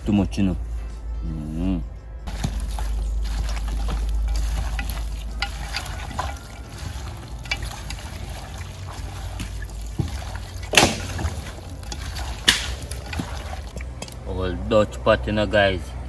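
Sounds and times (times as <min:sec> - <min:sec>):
hands squishing raw meat: 0:02.3 - 0:14.1.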